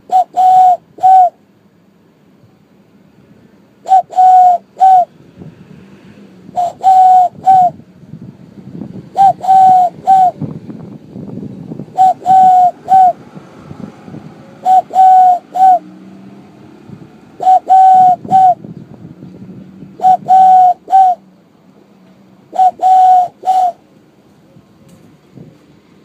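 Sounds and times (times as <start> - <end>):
cupped-hand whistle imitating dove: 0.0 - 1.4, 3.9 - 5.1, 6.6 - 7.8, 9.2 - 10.4, 12.0 - 13.2, 14.6 - 15.8, 17.4 - 18.6, 20.0 - 21.2, 22.5 - 23.8.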